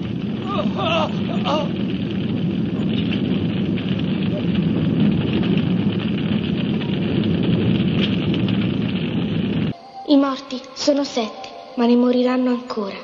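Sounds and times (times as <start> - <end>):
large fire burning and crackling: 0.0 - 9.8.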